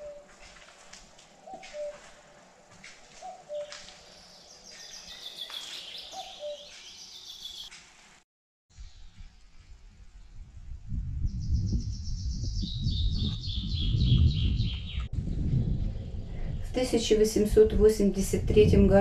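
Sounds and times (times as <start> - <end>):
small birds chirping: 3.1 - 7.7, 11.2 - 15.1.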